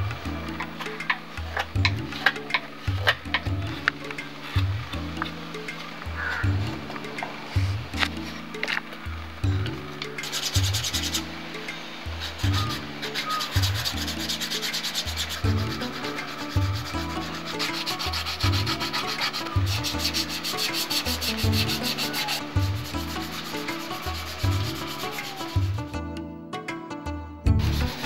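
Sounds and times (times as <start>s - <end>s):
sandpaper rubbing on wood: 10.2s - 11.3s, 12.3s - 25.8s, 27.6s - 28.0s.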